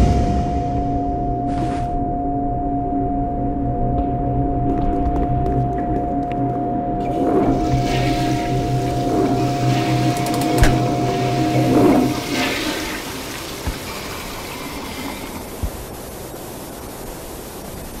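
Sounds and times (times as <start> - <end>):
steady low hum: 0.0 - 18.0
toilet flushing: 7.1 - 15.6.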